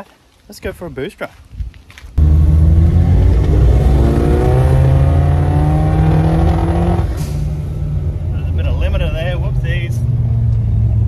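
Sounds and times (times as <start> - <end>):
car engine accelerating: 2.2 - 11.0.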